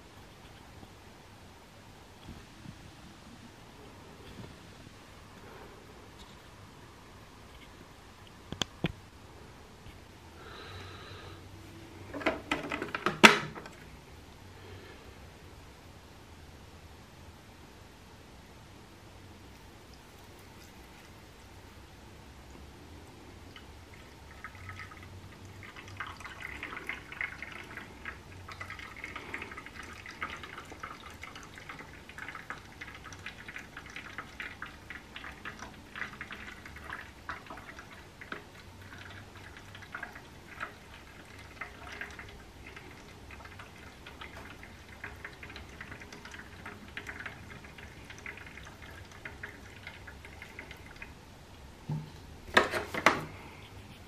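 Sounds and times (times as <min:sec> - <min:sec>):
plastic knocks: 0:12.1 - 0:13.7, 0:51.9 - 0:53.3
water trickling and dripping: 0:22.4 - 0:51.2.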